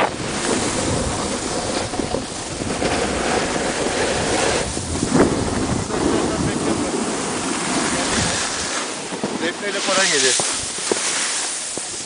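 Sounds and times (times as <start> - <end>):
wind noise on microphone: 0.0 - 9.5.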